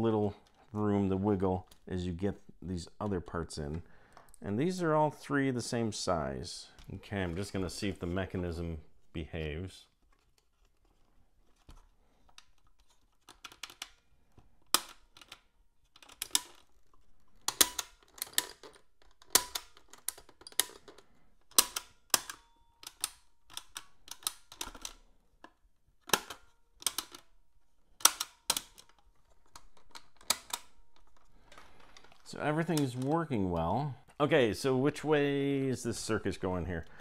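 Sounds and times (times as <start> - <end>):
tape recorder keys clicking: 17.4 - 25.0, 28.0 - 34.2.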